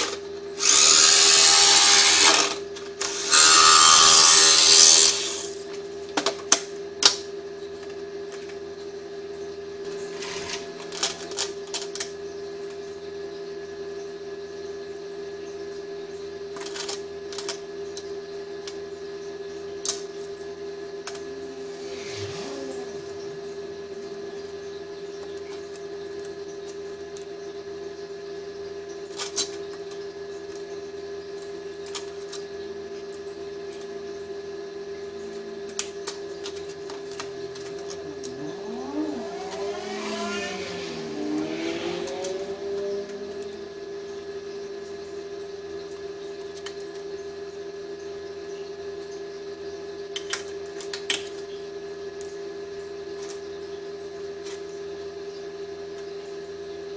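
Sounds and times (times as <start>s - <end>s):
steady machine hum: 0.0s - 56.9s
wavering scraping sound: 21.4s - 23.7s, 37.8s - 43.8s.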